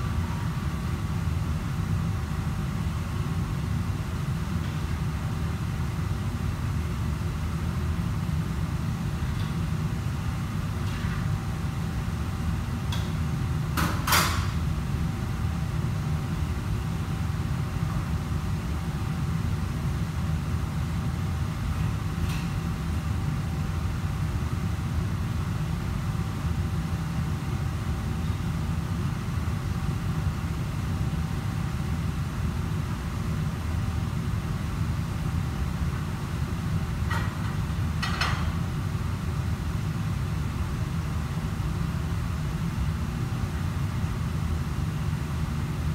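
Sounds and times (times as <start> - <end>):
faint steady hum: 0.0 - 45.9
kitchen machinery rumble: 37.0 - 38.8.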